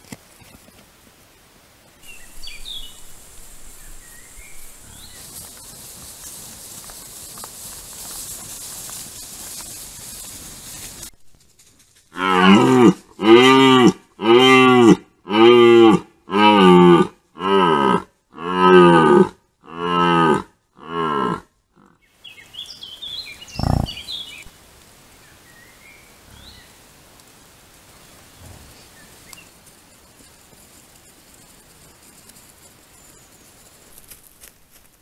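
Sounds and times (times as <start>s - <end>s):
deer stag roaring: 23.6s - 24.0s.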